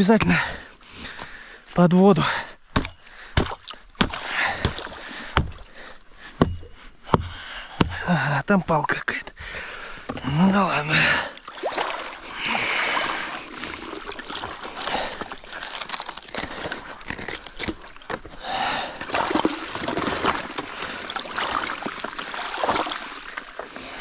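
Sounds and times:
stream water sloshing and splashing: 0:02.4 - 0:06.4, 0:09.8 - 0:24.0
ice shards clinking and crunching: 0:13.4 - 0:18.4, 0:19.0 - 0:23.1.

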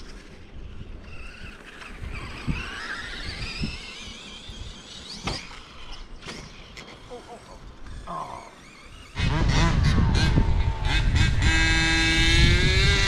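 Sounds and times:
wind rumble on microphone: 0:00.0 - 0:05.0, 0:09.2 - 0:13.0
toy car electric motor whining: 0:00.0 - 0:13.0.

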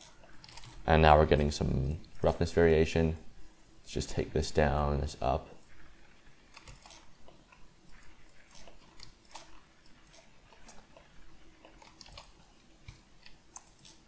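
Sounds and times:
computer mouse clicking: 0:00.0 - 0:00.8, 0:06.5 - 0:14.0
faint steady hum: 0:00.0 - 0:14.0.

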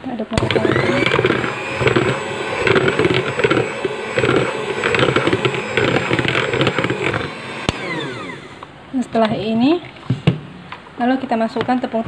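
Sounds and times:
mixer switch click: 0:00.4 - 0:08.7
electric hand mixer running: 0:00.4 - 0:08.8.

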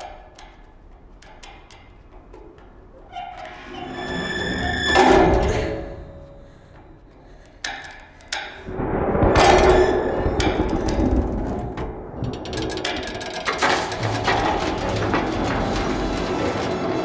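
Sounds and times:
sharp metal knocks: 0:07.6 - 0:16.0
metal hoist cage banging: 0:07.6 - 0:17.0
loud metal rattling clatter: 0:08.7 - 0:17.0.

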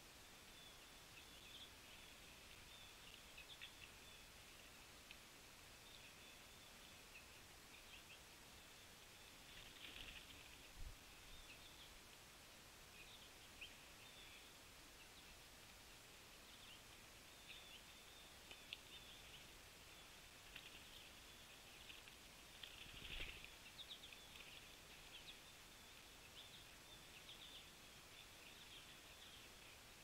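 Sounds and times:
songbird chips and calls: 0:16.5 - 0:29.8.

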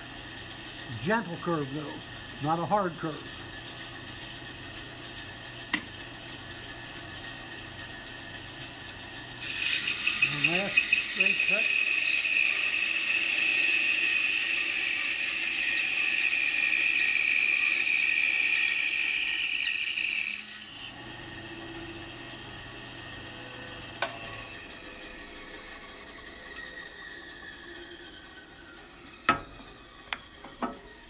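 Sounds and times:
saw running without load: 0:00.0 - 0:31.0
band saw cutting wood: 0:00.8 - 0:03.6, 0:09.4 - 0:31.0.

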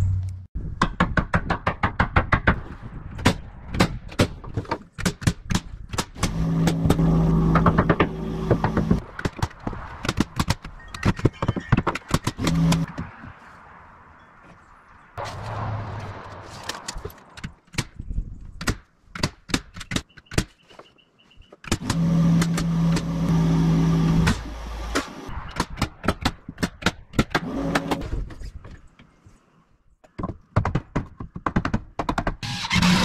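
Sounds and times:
hammer striking nails: 0:30.2 - 0:32.4.

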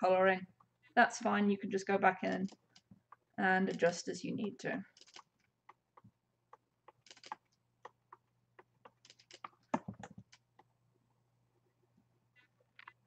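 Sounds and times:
computer keyboard keys clicking: 0:06.8 - 0:10.4.

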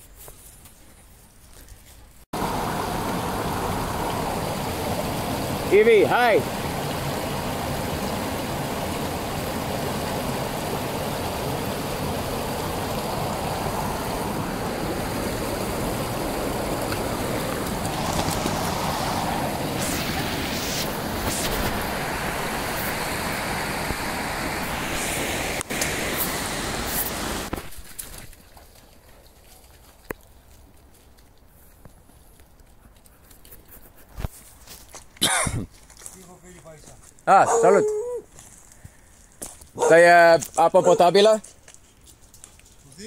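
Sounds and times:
river rapids rushing over rocks: 0:02.4 - 0:27.5.

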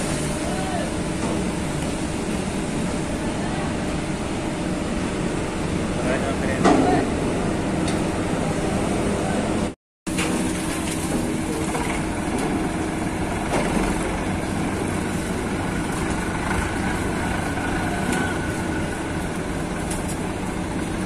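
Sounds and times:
tractor diesel engine idling: 0:11.0 - 0:21.0.

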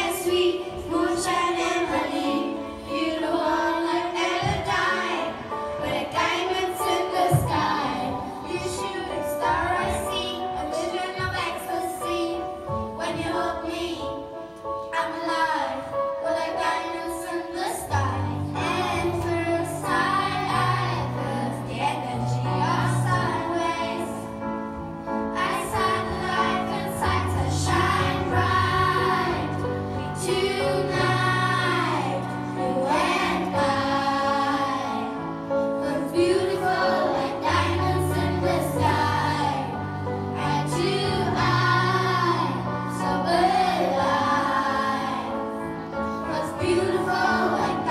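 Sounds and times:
children's choir singing: 0:00.0 - 0:47.9.

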